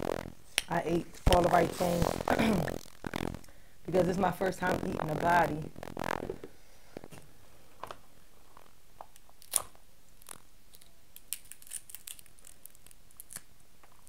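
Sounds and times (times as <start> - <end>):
crab shell cracking: 8.6 - 14.0.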